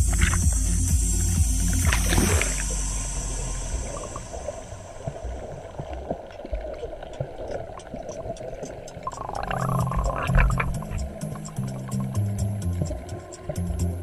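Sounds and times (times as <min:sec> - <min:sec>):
muffled water sloshing and bubbling: 0:00.0 - 0:14.0
small clicks: 0:05.8 - 0:12.2.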